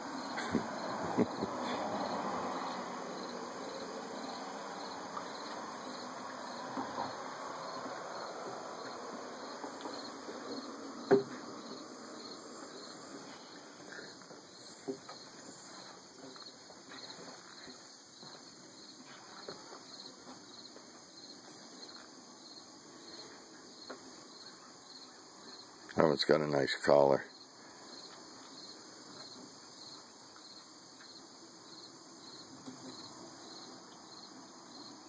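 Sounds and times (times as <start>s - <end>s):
insects chirping: 0.0s - 35.0s.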